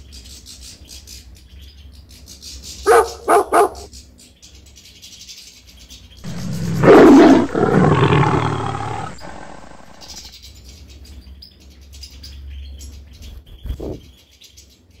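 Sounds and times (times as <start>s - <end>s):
faint birds twittering: 2.5s - 4.5s, 5.9s - 10.3s, 12.2s - 14.6s
loud roar: 6.3s - 10.3s.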